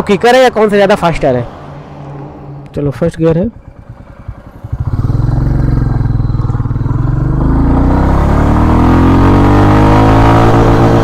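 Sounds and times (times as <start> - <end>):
motorcycle engine accelerating: 2.5 - 11.0.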